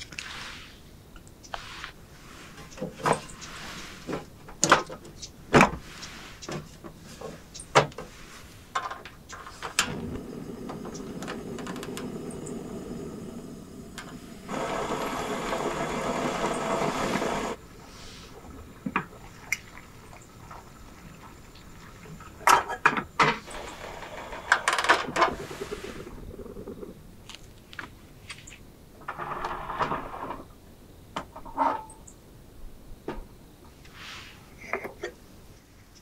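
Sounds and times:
gas burner roar: 0:09.4 - 0:18.9, 0:23.4 - 0:26.2.

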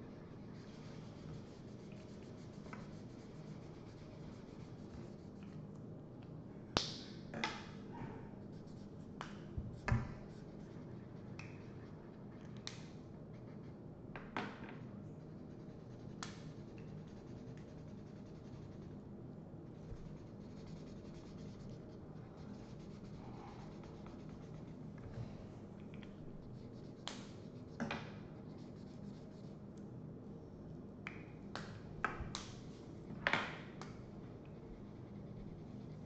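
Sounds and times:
markers scratching on paper: 0:00.1 - 0:05.6, 0:19.8 - 0:24.8, 0:34.5 - 0:36.0.

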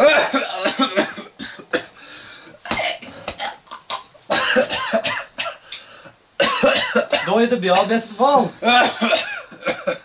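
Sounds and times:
man coughing: 0:00.0 - 0:02.0, 0:02.7 - 0:05.6, 0:06.4 - 0:08.0, 0:08.6 - 0:10.0.

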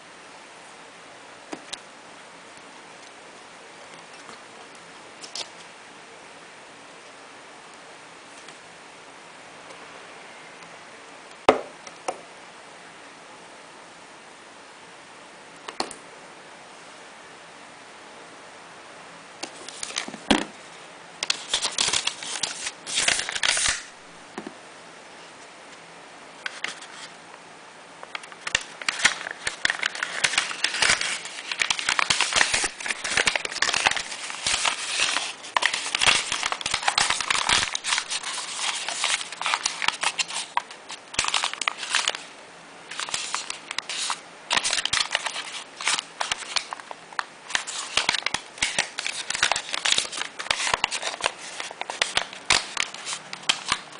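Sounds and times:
paper wrapper crinkling: 0:19.4 - 0:20.2, 0:21.2 - 0:23.9, 0:28.1 - 0:42.3, 0:42.9 - 0:53.9.

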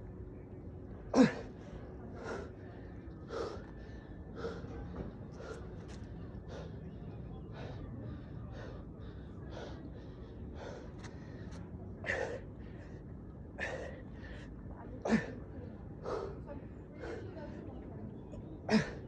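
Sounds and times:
man breathing hard: 0:02.2 - 0:14.5.

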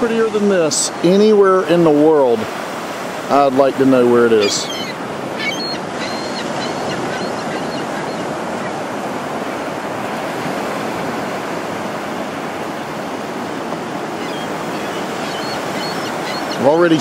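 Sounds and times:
small surf washing up beach: 0:00.0 - 0:17.0.

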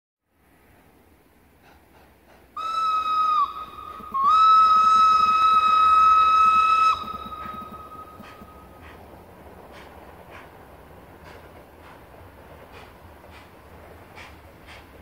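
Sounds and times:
steam whistle blasts: 0:02.6 - 0:08.4.

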